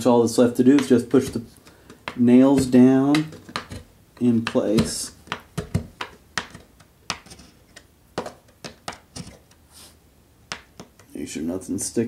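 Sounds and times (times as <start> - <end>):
hand tool clicking and tapping: 0.8 - 9.6, 10.5 - 11.1.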